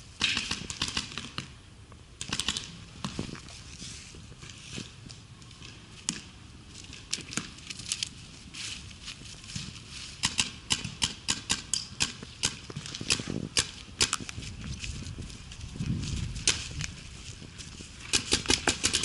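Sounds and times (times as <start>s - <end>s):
paintball markers firing: 0.2s - 1.5s, 2.2s - 3.2s, 10.2s - 14.3s, 18.1s - 19.0s.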